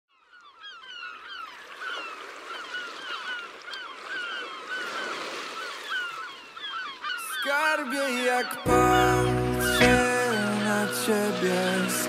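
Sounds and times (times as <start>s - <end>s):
flock of birds calling: 0.2s - 12.0s.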